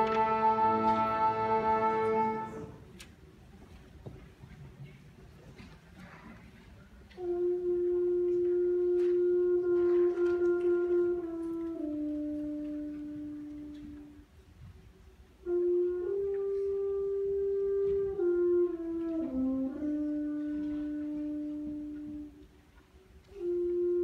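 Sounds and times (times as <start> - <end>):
concert band wind instruments: 0.0 - 3.8, 4.4 - 24.0.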